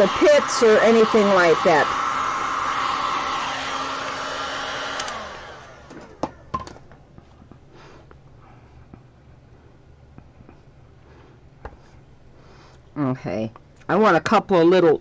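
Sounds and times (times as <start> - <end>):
heat gun blowing with whine: 0.0 - 6.5.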